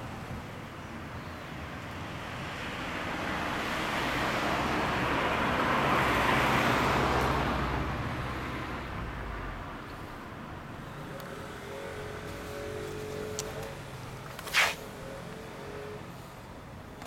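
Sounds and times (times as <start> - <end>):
vehicle passing: 10.7 - 16.7.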